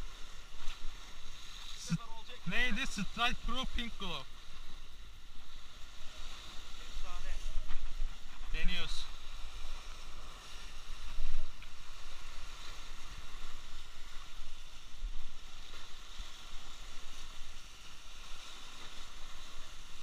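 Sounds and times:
wind on microphone: 3.0s - 20.0s.

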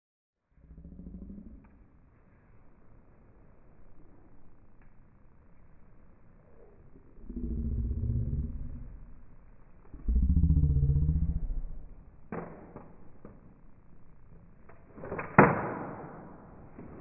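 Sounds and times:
low wavering drone: 0.6s - 2.7s, 6.0s - 12.3s.

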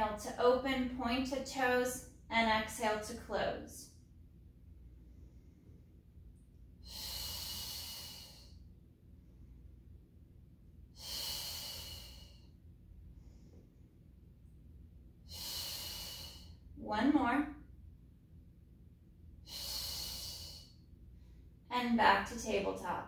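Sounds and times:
woman breathing: 4.8s - 9.8s, 10.8s - 14.2s, 15.2s - 16.8s, 19.4s - 21.6s.

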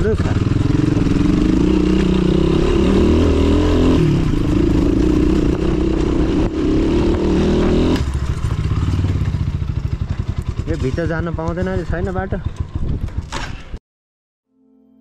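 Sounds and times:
dirt bike engine: 0.0s - 13.8s.

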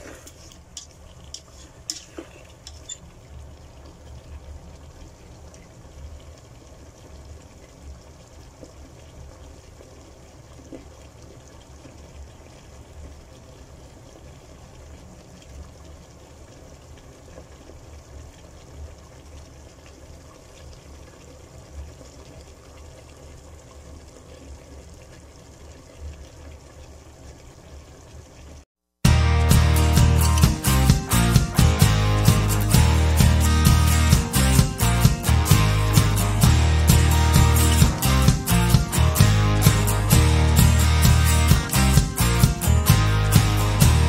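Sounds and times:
low hum: 29.1s - 44.0s.

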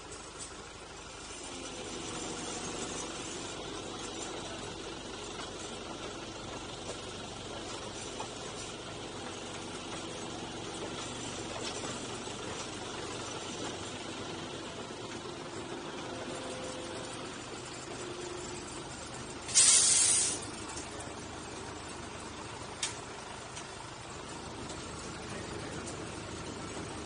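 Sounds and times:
train rumbling: 0.0s - 27.0s
short loud hiss: 19.5s - 20.5s.

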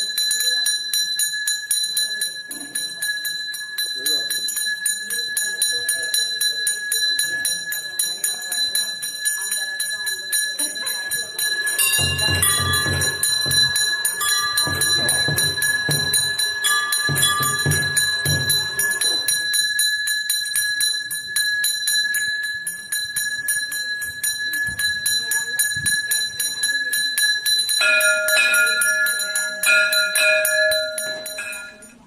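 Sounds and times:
bell ringing rapidly: 0.0s - 32.0s.

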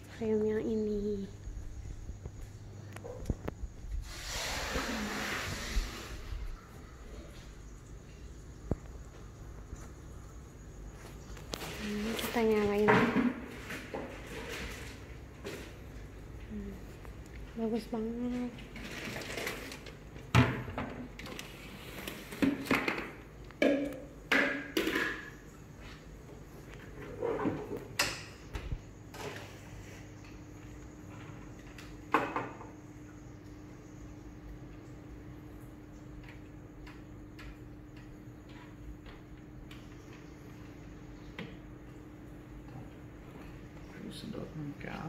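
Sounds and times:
aquarium pump humming: 0.0s - 45.0s.

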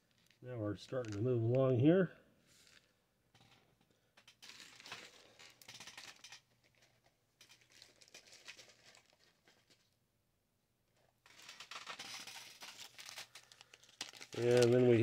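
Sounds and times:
packaging crinkling and rustling: 0.0s - 0.4s, 1.0s - 1.2s, 4.4s - 10.0s, 11.2s - 15.0s.

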